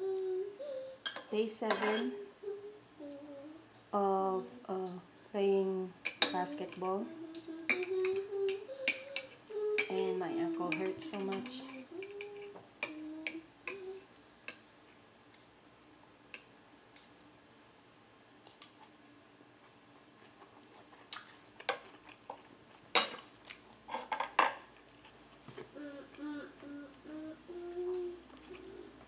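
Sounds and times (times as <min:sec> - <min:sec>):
person humming: 0:00.0 - 0:01.1, 0:01.9 - 0:14.1, 0:25.7 - 0:29.0
cutlery clinking on glass bowls: 0:01.0 - 0:02.1.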